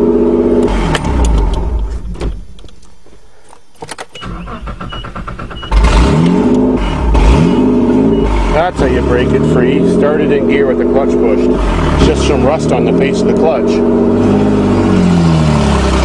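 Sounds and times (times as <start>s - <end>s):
engine revving with low thumps: 0.0s - 2.5s, 4.8s - 16.0s
truck engine shutting off: 4.2s - 16.0s.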